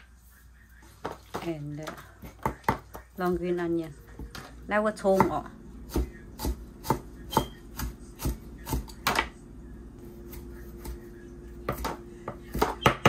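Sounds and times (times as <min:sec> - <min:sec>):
knife chopping on cutting board: 0:05.1 - 0:09.3, 0:11.6 - 0:13.0.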